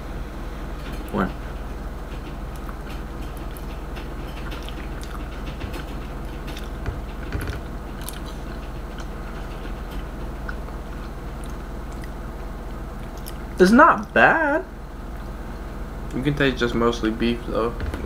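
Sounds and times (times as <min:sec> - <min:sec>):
people chewing food: 0:00.8 - 0:14.2.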